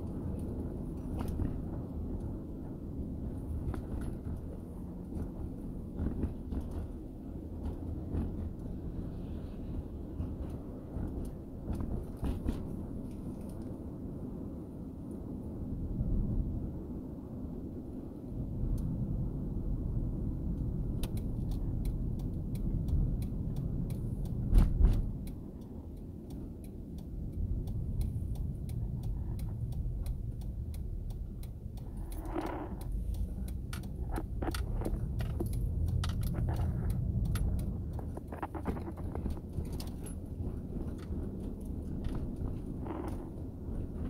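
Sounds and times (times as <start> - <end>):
vehicle driving rumble: 0.0 - 44.0
light clicks and rattles: 20.9 - 44.0.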